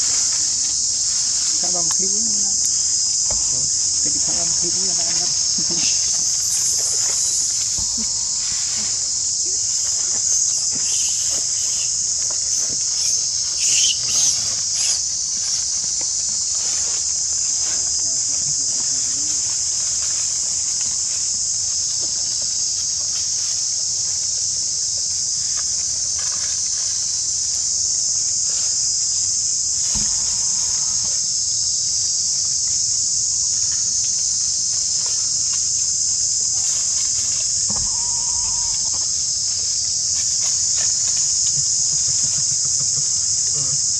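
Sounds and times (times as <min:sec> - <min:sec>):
insect chorus drone: 0:00.0 - 0:43.9
short animal calls: 0:13.0 - 0:15.0.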